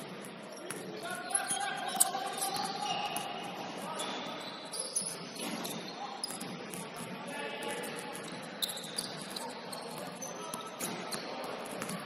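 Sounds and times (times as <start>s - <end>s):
sneakers squeaking on wooden floor: 0.0s - 6.9s, 8.2s - 12.0s.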